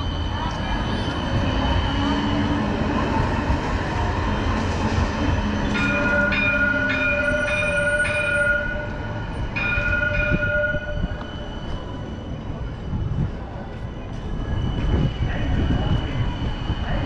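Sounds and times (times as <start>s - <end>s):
tram running hum: 0.0s - 17.0s
high ringing tone: 5.8s - 12.4s.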